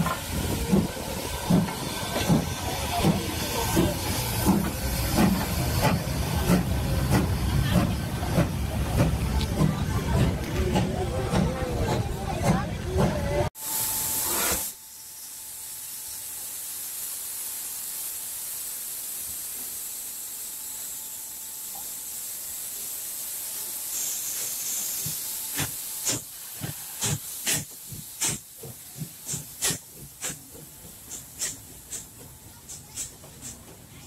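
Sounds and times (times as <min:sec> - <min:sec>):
train wheels knocking: 0:00.0 - 0:13.4, 0:25.6 - 0:33.9
steam locomotive hissing: 0:00.0 - 0:34.0.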